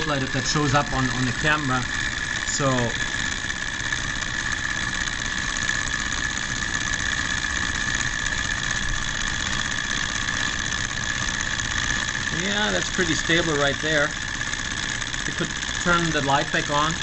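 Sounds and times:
small engine whirring: 0:00.0 - 0:17.0.

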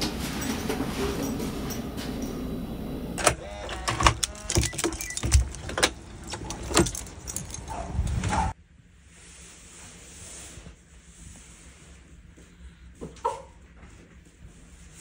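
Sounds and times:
room hum: 0:00.0 - 0:15.0
door squeak: 0:03.2 - 0:07.1
door lock and handle clicks: 0:03.2 - 0:08.3.

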